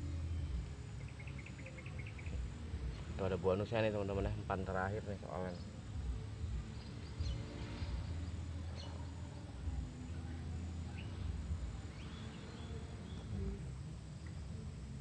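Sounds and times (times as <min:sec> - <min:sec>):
insects: 0:00.0 - 0:15.0
low rumble: 0:05.9 - 0:12.1.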